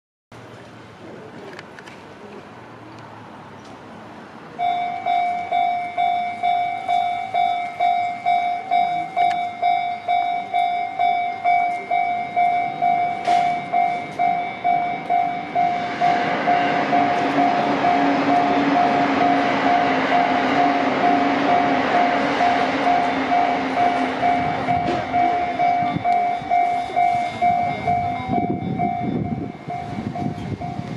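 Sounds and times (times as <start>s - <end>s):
train running: 0.3s - 30.9s
level crossing warning bell: 4.5s - 30.9s.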